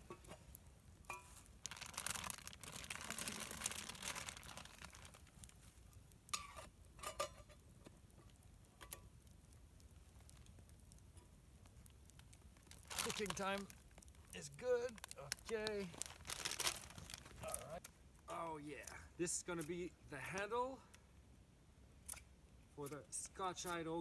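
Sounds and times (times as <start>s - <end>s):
water boiling: 0.0s - 20.4s
plastic bag crinkling: 1.2s - 5.7s, 12.0s - 17.8s.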